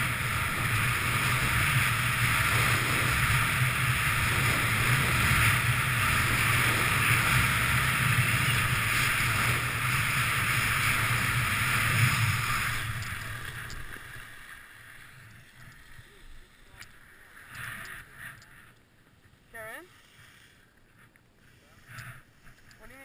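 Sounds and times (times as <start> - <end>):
wind rushing over microphone: 0.0 - 14.2
skis running over snow: 0.0 - 18.7.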